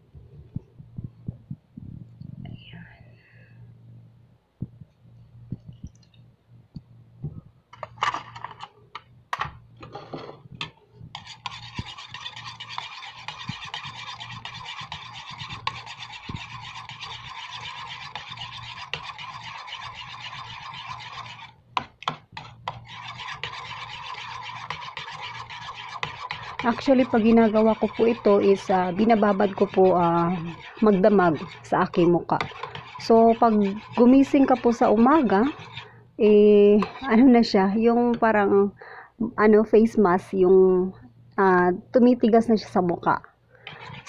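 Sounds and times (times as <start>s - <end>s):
metal spoon scraping a bowl: 11.1s - 21.5s, 22.4s - 35.9s, 36.7s - 37.2s, 43.6s - 44.0s.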